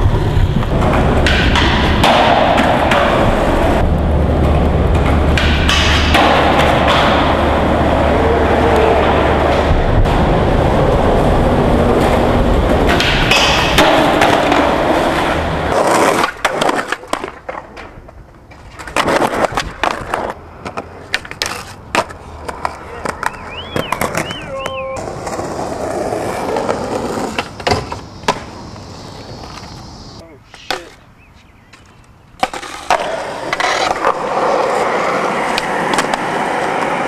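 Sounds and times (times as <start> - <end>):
skateboard wheels rolling on concrete: 0.0 - 37.0
skateboard popping and landing: 0.1 - 29.9, 32.4 - 37.0
skateboard grinding metal handrail: 0.2 - 23.3.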